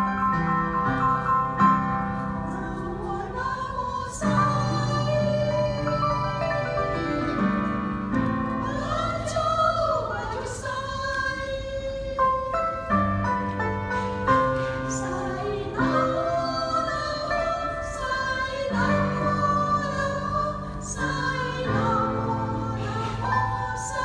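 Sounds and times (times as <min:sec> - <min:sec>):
piano accompaniment: 0:00.0 - 0:24.0
mixed choir singing: 0:02.5 - 0:06.5, 0:08.6 - 0:11.8, 0:14.5 - 0:24.0.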